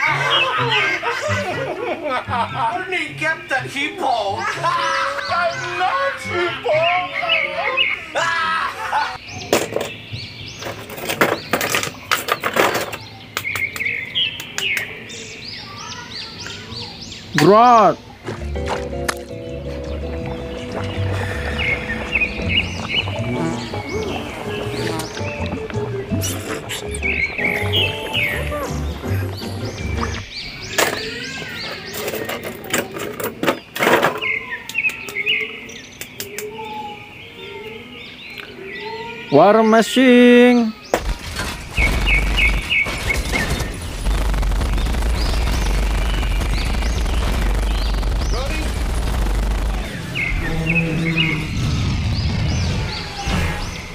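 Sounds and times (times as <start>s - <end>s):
birds chirping: 0.0s - 53.9s
plastic blister tray crackling: 41.0s - 51.3s.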